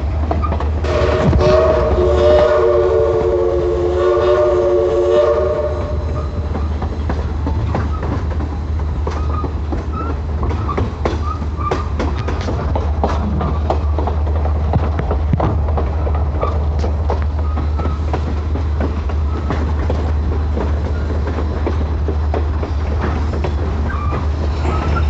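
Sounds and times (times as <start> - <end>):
train wheels clicking over rail joints: 0.0 - 25.0
steam whistle chord: 0.8 - 6.3.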